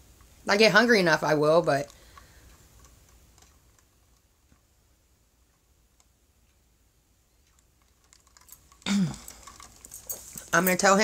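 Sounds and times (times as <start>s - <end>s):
faint clicks: 1.7s - 4.7s, 7.4s - 10.7s.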